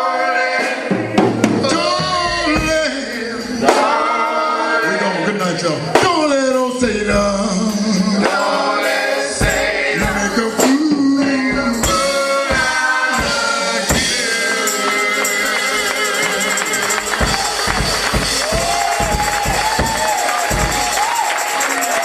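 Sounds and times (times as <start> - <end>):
singers holding long notes: 0.0 - 22.0
drums: 0.1 - 4.8, 5.5 - 22.0
tambourine jingling: 6.7 - 22.0.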